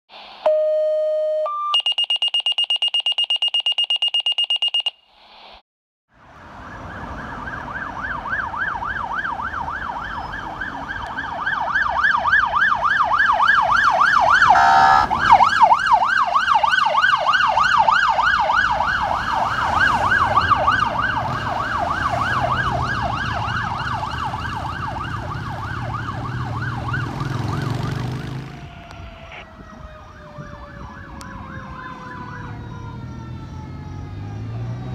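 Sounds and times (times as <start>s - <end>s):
electronic siren yelping: 0.2s - 5.1s, 6.8s - 34.9s
electronic beeps: 0.4s - 5.1s, 14.5s - 15.0s.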